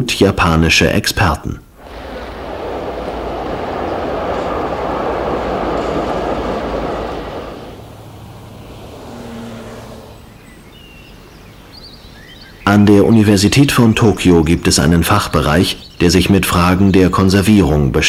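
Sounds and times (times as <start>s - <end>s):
train rushing past: 1.7s - 11.3s
street noise: 1.7s - 11.5s.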